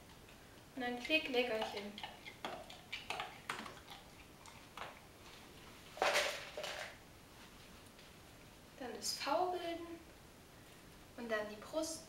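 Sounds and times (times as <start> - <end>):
dog crunching a treat: 1.6 - 5.0.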